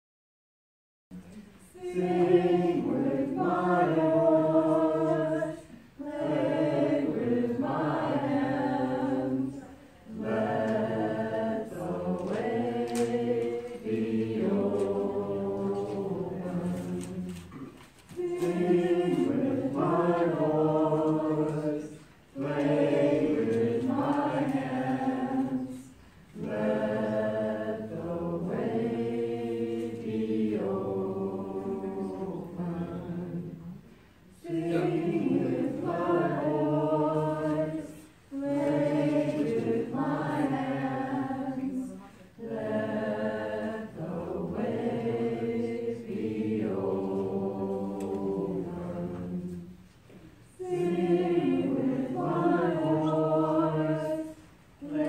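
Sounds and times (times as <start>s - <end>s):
group chanting unaccompanied: 1.6s - 49.8s, 50.5s - 55.0s.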